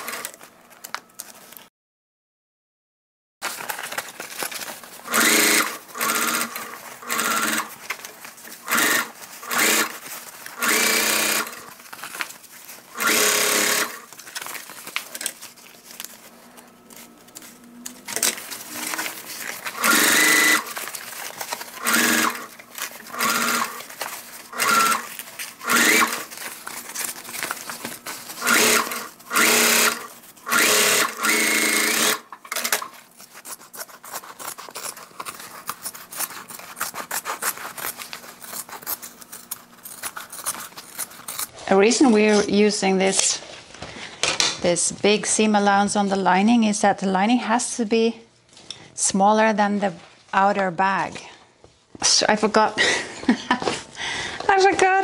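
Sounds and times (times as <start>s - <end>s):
sewing machine stitching: 0.0s - 0.4s, 5.0s - 11.8s, 12.9s - 14.1s, 17.9s - 41.5s.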